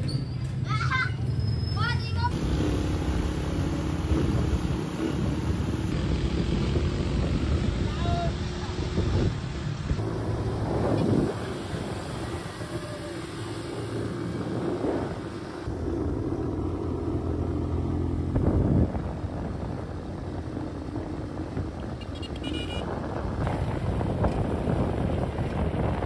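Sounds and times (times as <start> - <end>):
road and wind noise: 0.0 - 26.0
small motorcycle engine running: 2.3 - 9.4.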